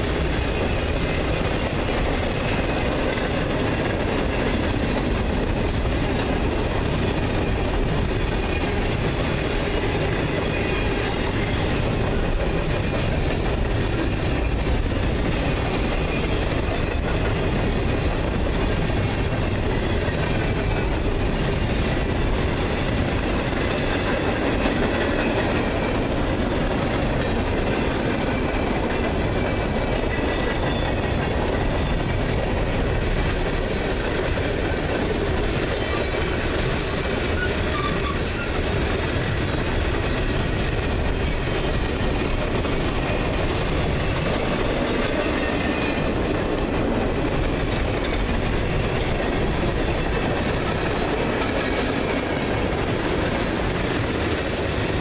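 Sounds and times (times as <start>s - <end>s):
freight train wheels rumbling: 0.0s - 55.0s
wheels squealing: 37.1s - 38.6s.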